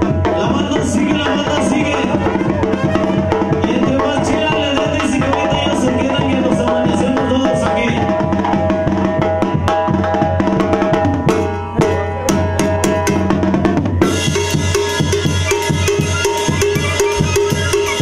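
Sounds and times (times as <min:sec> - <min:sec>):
bass drum: 0:00.0 - 0:18.0
brass band playing: 0:00.8 - 0:05.8, 0:10.6 - 0:18.0
cymbals: 0:10.9 - 0:18.0.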